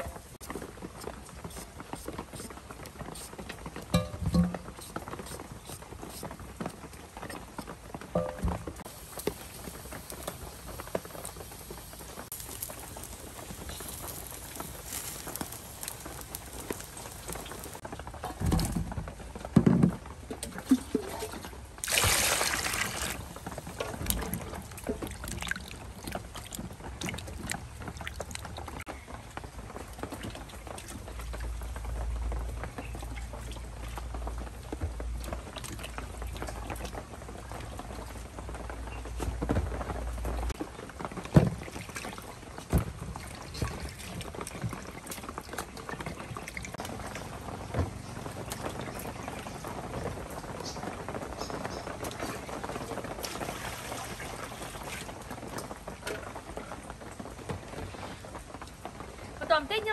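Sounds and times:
water sloshing in metal basin: 3.9s - 4.9s, 8.2s - 8.8s, 20.4s - 28.6s
rush of water: 8.0s - 18.7s, 20.3s - 38.4s, 40.4s - 59.9s.

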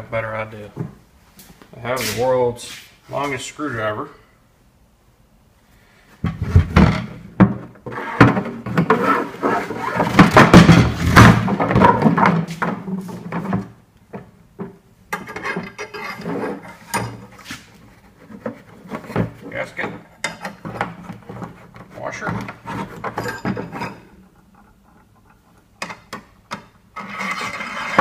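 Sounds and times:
plastic tank knocks and thumps: 10.0s - 14.7s.

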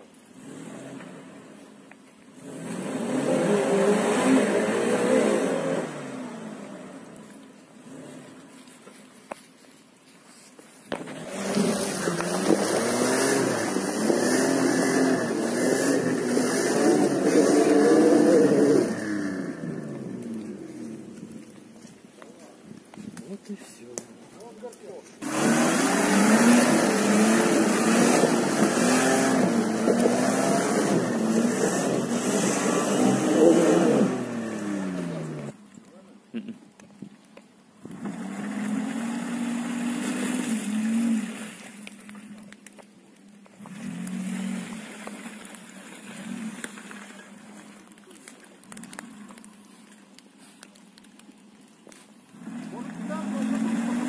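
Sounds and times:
car engine revving hard: 0.3s - 1.5s, 2.4s - 7.1s, 11.0s - 20.6s, 25.2s - 35.6s, 37.9s - 41.6s, 43.6s - 45.2s, 52.4s - 54.0s.

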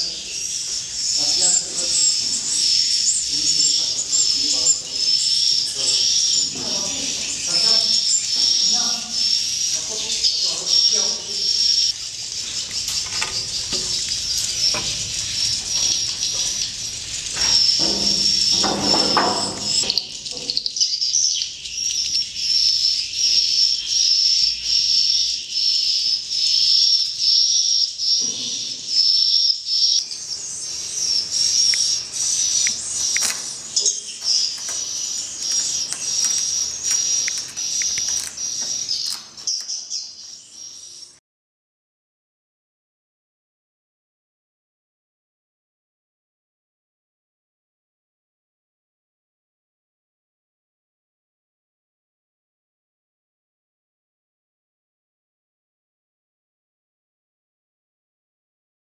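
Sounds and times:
birds chirping and twittering: 0.0s - 41.2s.

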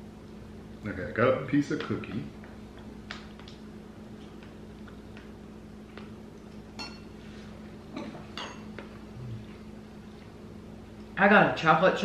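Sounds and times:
spoon clinking on glass bowl: 6.8s - 7.1s.

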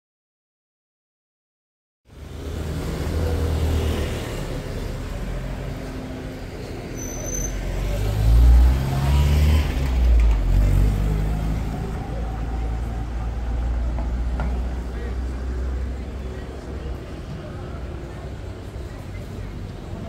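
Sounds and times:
vehicles passing: 2.1s - 20.0s.

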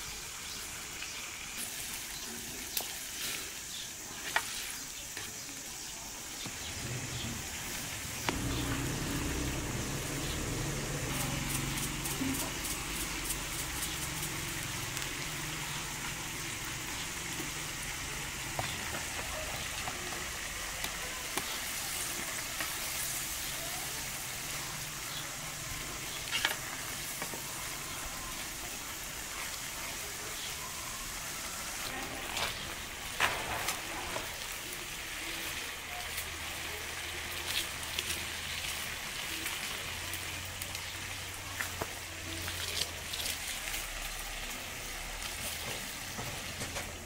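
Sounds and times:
sauce sizzling in a pan: 0.0s - 47.0s
wooden spoon stirring: 4.0s - 5.6s.

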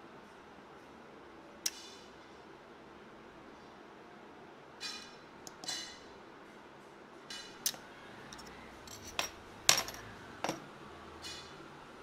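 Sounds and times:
metal clinks and taps: 7.7s - 10.7s.

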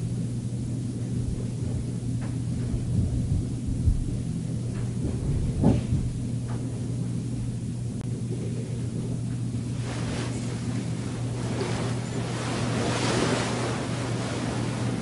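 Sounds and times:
steady low hum: 0.0s - 15.0s
bedding rustling and bumping: 1.3s - 7.6s.

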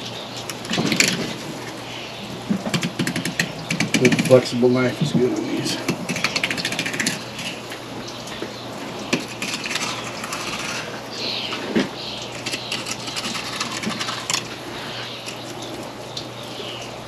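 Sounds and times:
knife clicking and scraping bones: 12.3s - 15.6s.

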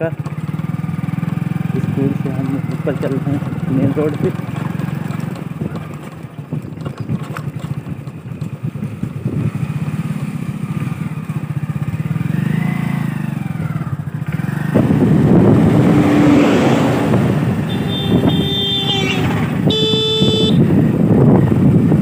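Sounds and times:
motorcycle engine running: 0.0s - 22.0s
road noise: 0.0s - 22.0s
rush of wind: 14.3s - 22.0s.

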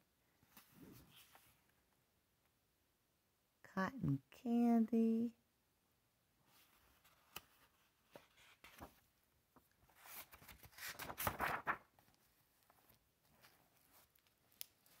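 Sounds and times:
book pages turning: 0.5s - 1.7s, 6.5s - 15.0s
rustling paper: 6.5s - 15.0s.

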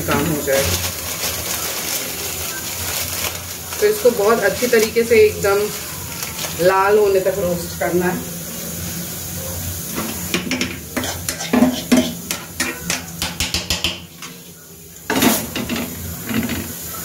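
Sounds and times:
dishes and utensils clinking: 9.9s - 14.4s, 15.1s - 16.8s.

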